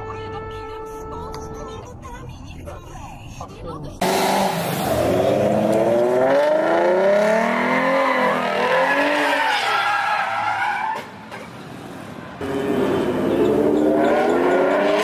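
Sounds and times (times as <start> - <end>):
car engine revving: 4.0 - 9.4, 12.4 - 15.0
tyres squealing: 7.4 - 11.2.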